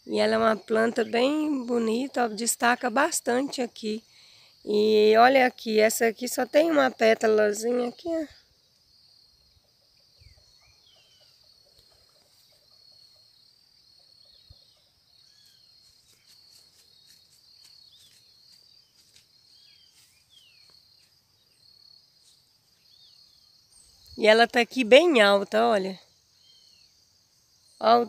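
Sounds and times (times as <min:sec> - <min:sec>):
bird chirps: 0:08.7 - 0:24.4, 0:26.3 - 0:27.0.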